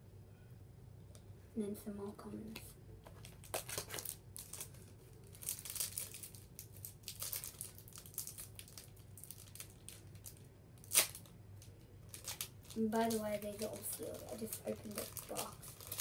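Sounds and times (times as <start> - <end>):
foil wrapper crinkling and tearing: 3.2 - 16.0.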